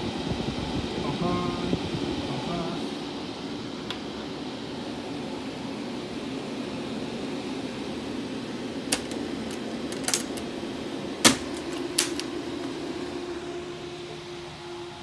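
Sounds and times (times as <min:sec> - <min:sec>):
cooling fans humming: 0:00.0 - 0:15.0
enclosure clicks and knocks: 0:11.3 - 0:12.3.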